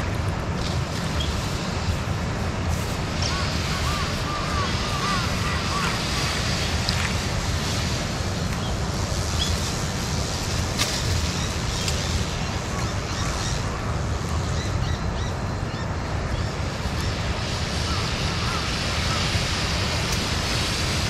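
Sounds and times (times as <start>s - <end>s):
birds chirping: 3.1s - 6.8s.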